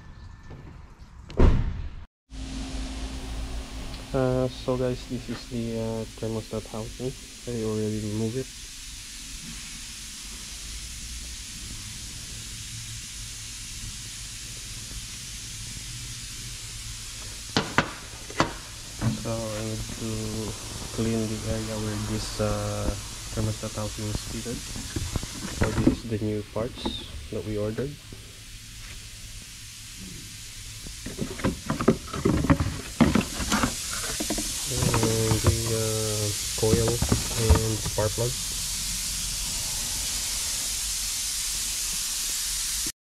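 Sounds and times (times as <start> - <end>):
low hum: 2.3 - 8.7, 15.4 - 40.8
steady hiss: 2.4 - 42.9
cardboard box rustling: 31.1 - 35.7, 36.7 - 38.1.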